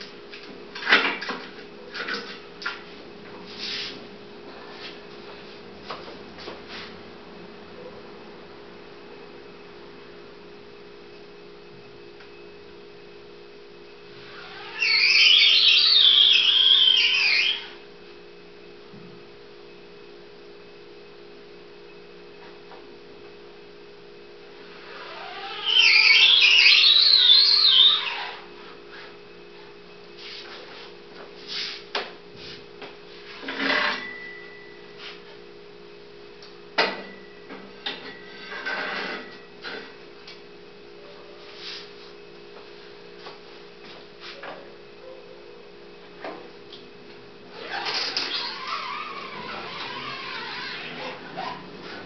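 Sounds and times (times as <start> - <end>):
electrical hum: 0.0 - 52.0
squeaky scoop coater: 14.4 - 17.8, 25.0 - 28.3, 47.6 - 52.0.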